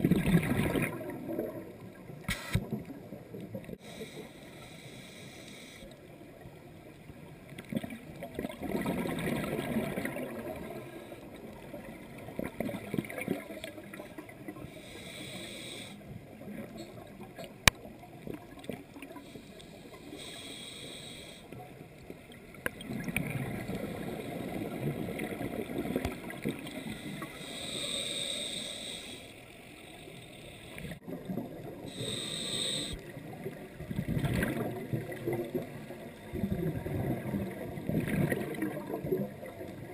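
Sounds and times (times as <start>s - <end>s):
regulator hissing inhale: 3.8s - 6.0s, 14.6s - 16.2s, 19.2s - 21.6s, 26.6s - 31.0s, 31.9s - 33.1s.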